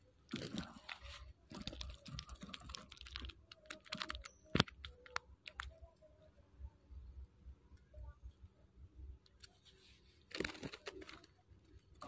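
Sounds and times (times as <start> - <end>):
fishing line clicks and rustles: 0.2 - 5.8, 9.2 - 12.0.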